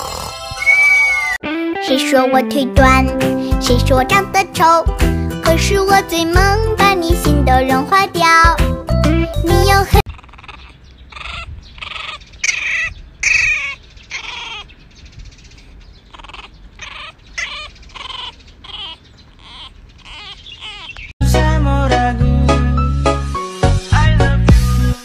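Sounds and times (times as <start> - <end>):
puppy whimpering: 10.0 - 14.7, 16.1 - 21.1.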